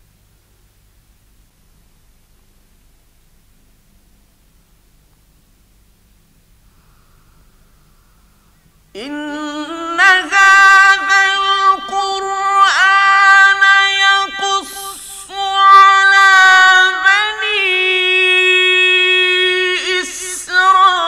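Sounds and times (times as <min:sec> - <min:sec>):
man chanting melodically: 0:09.0 - 0:21.0.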